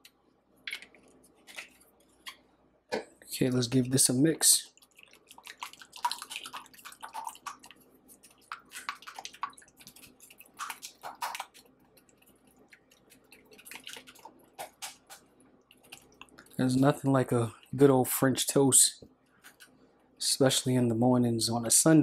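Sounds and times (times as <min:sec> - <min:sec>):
whisk beating eggs in glass bowl: 0:04.9 - 0:15.1.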